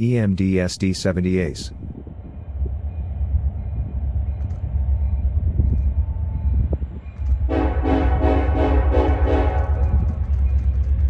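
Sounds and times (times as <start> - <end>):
train rumbling past: 0.0 - 11.0
train horn chord: 7.5 - 10.2.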